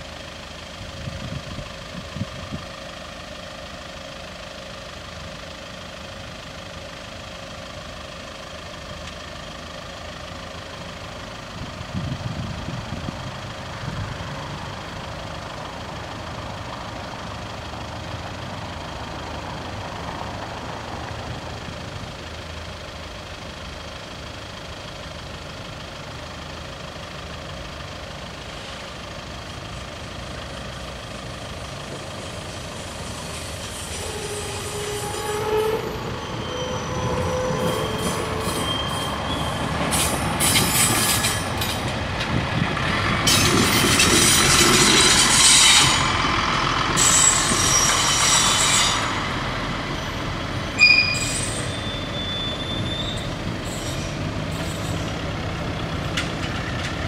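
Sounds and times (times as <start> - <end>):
railcar engine and wheel noise: 0.0 - 57.0
train rattling over track: 10.3 - 23.8, 26.2 - 57.0
brief tone: 50.8 - 53.3.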